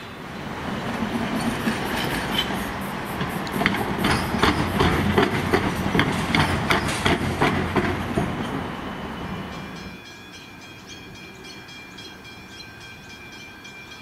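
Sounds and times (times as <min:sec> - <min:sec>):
electric train passing: 0:00.0 - 0:14.0
wheels clacking over rail joints: 0:00.4 - 0:10.0.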